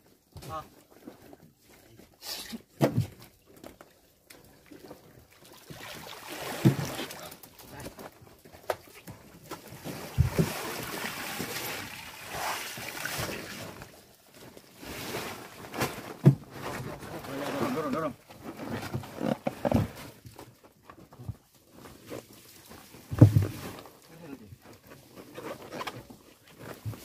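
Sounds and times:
water splashing with fish: 2.7 - 16.4.

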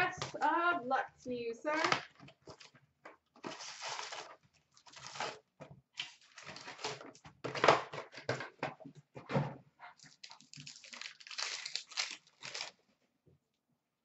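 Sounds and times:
packaging torn and crumpled: 3.4 - 5.4, 10.0 - 12.8.

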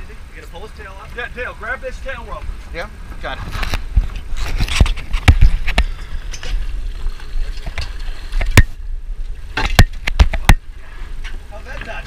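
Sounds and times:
knocks and thumps on a boat: 3.4 - 8.8, 9.5 - 12.0.

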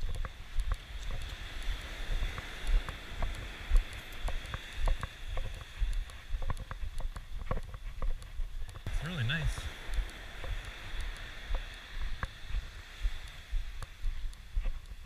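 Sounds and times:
wind buffeting microphone: 0.0 - 15.0
surf hissing: 8.8 - 14.5.

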